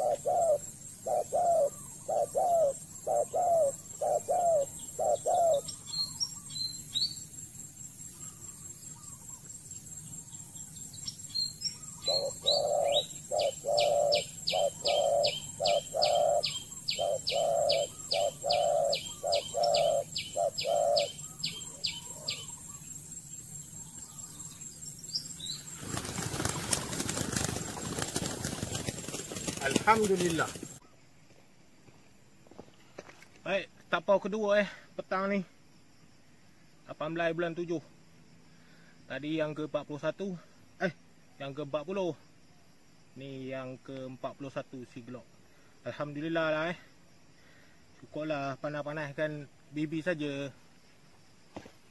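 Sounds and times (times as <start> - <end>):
doves cooing: 0.0 - 6.6, 11.7 - 24.6, 25.4 - 30.9
high ticking bird calls: 0.0 - 31.0
wings flapping and rustling: 25.6 - 30.8.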